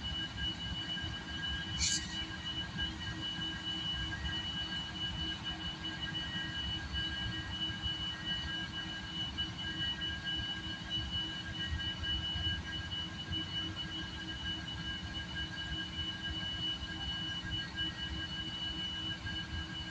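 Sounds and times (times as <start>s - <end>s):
high-pitched whining tones: 1.6s - 2.6s.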